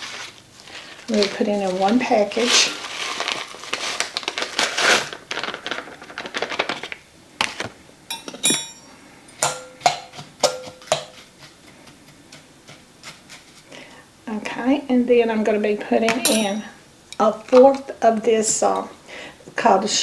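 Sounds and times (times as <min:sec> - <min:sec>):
packet rustling: 0:00.0 - 0:07.8
fork clinking against glass bowl: 0:08.1 - 0:11.2, 0:16.3 - 0:16.6.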